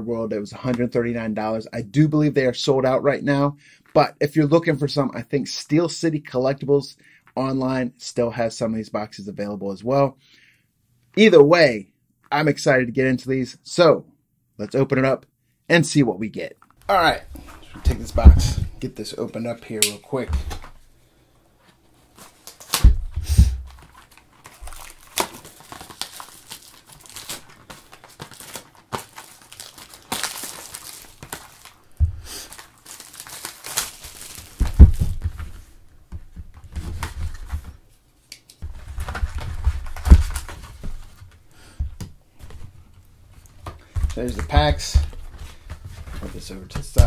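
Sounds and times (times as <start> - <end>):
plastic wrap crinkling: 22.0 - 37.7, 38.6 - 41.4, 42.4 - 47.0
knife slitting plastic wrap: 23.7 - 31.8, 32.4 - 34.8.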